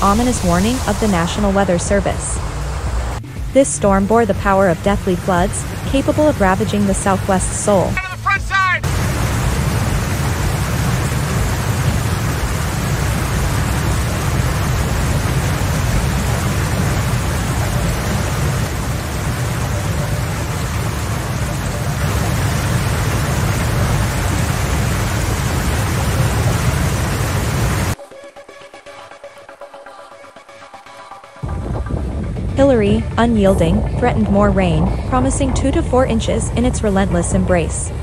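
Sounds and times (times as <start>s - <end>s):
wind and rain rushing: 0.0s - 28.0s, 31.4s - 38.0s
wind rumble on microphone: 8.9s - 28.0s, 31.4s - 38.0s.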